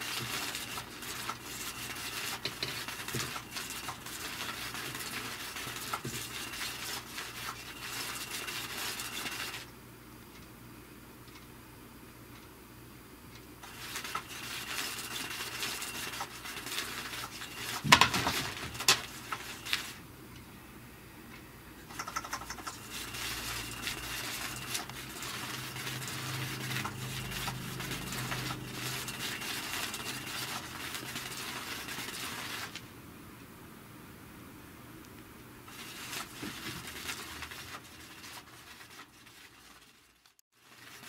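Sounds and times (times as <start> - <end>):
wand scraping under fabric: 22.7 - 32.8, 35.7 - 41.0.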